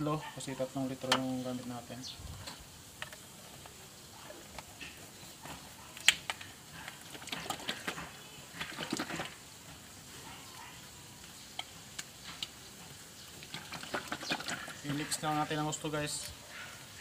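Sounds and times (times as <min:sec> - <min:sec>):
plastic bottles clicking and knocking: 0:04.4 - 0:09.4, 0:13.4 - 0:15.6.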